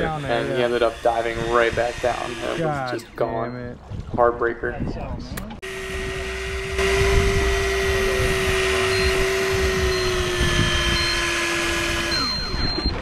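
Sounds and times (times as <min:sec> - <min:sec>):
electric fishing reel motor whine: 0:00.0 - 0:02.7, 0:05.6 - 0:13.0.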